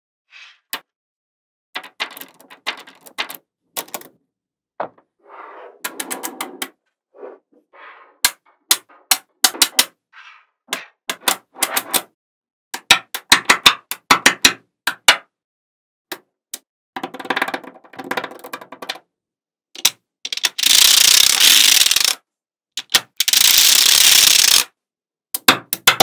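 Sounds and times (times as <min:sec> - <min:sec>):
balls rattling: 0:01.8 - 0:04.2
magnetic balls clicking: 0:19.8 - 0:22.2, 0:22.8 - 0:24.7.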